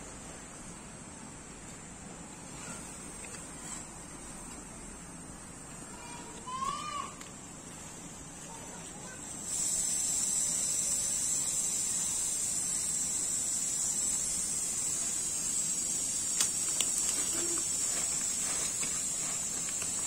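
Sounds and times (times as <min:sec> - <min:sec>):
high-pitched insect drone: 0:08.5 - 0:20.0
faint rustling ticks: 0:16.2 - 0:20.0.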